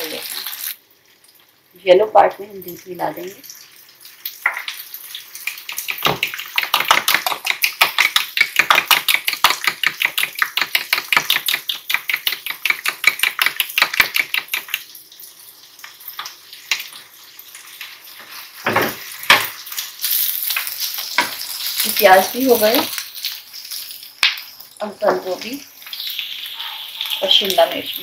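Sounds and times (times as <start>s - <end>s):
fork beating eggs in plastic bowl: 5.4s - 14.9s.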